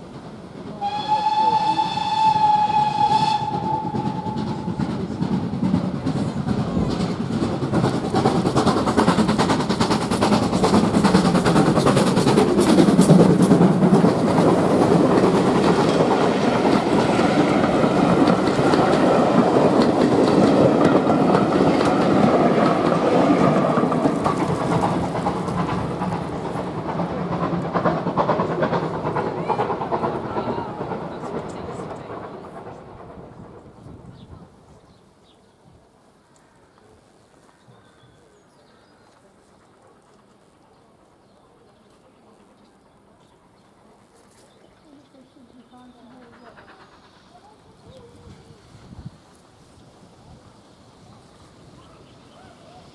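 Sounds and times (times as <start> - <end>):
steam train passing on rails: 0.0 - 52.9
steam locomotive whistle: 0.8 - 4.8.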